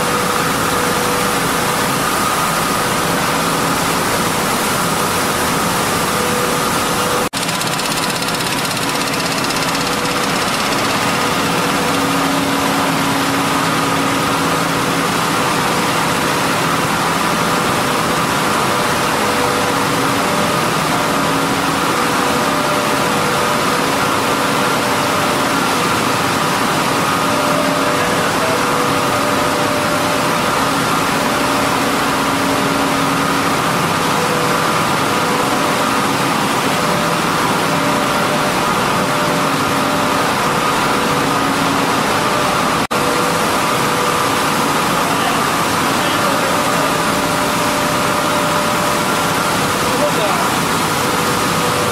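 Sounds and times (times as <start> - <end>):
milling machinery din: 7.3 - 13.2.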